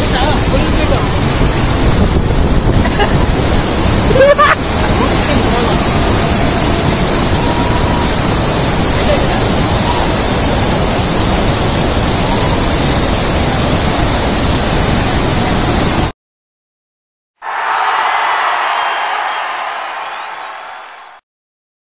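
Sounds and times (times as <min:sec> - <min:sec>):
waterfall pouring over rocks: 0:00.0 - 0:16.1.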